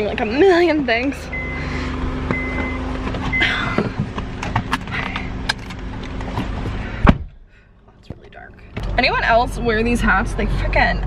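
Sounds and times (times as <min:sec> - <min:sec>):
car warning chime beeps: 0:01.2 - 0:01.7, 0:02.3 - 0:03.6
knocks clicks and rustling: 0:02.2 - 0:09.1.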